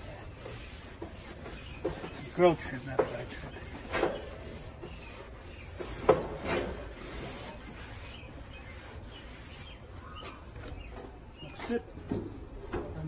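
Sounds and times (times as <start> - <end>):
paper towel rubbing metal grates: 0.0 - 10.2.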